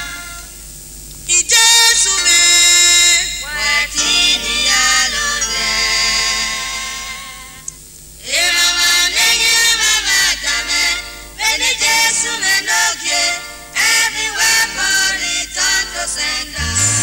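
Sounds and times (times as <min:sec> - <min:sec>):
people singing: 0:01.3 - 0:07.6, 0:08.2 - 0:17.0
instrumental accompaniment: 0:16.6 - 0:17.0.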